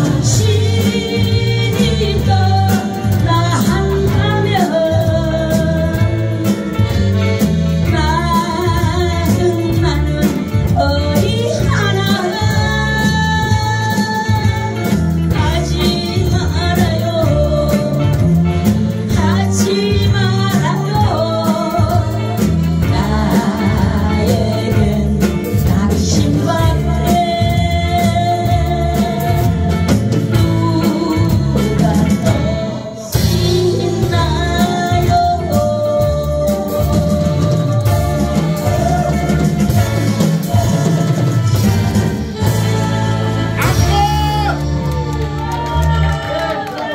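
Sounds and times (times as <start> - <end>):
band playing steady beat: 0.0 - 46.9
woman singing into microphone: 0.0 - 46.9.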